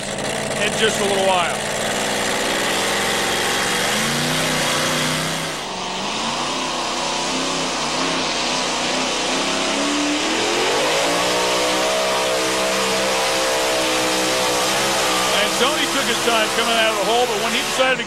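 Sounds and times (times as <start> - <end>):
supercharged racing engine at full throttle: 0.0 - 18.0.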